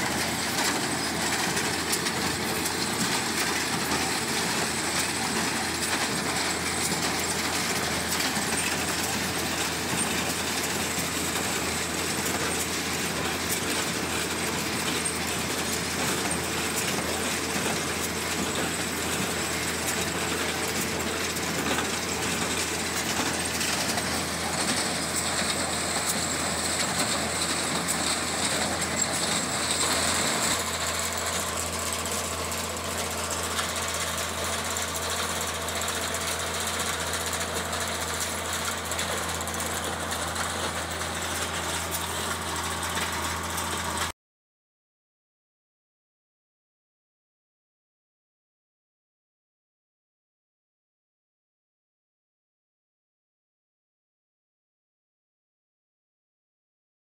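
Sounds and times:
hay baler mechanical clatter: 0.0s - 44.1s
tractor engine drone: 0.0s - 44.1s.

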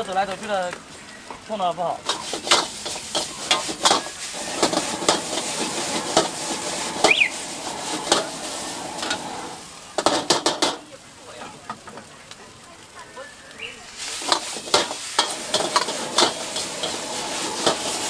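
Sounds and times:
noodles sizzling in oil: 0.0s - 18.0s
metal ladle clanking on wok: 14.2s - 17.0s.

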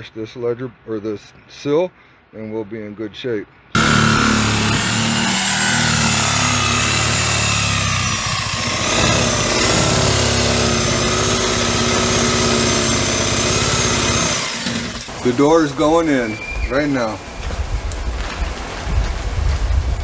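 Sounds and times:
reciprocating saw cutting plywood: 3.8s - 15.8s.

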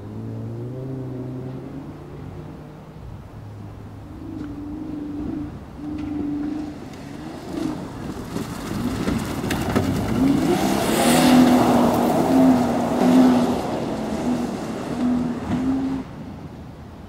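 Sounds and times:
car engine revving hard: 10.0s - 16.2s.

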